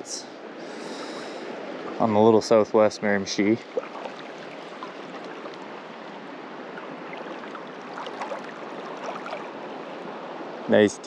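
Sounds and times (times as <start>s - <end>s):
river water rushing over rocks: 3.2s - 10.7s.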